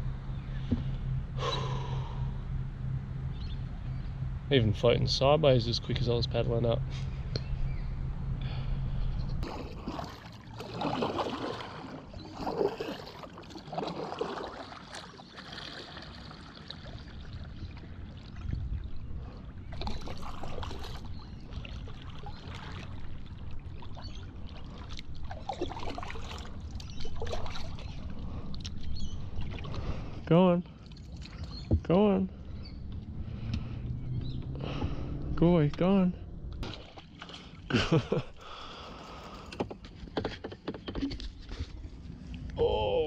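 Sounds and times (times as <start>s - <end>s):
water splashing around kayak: 9.4s - 33.9s, 34.6s - 42.5s.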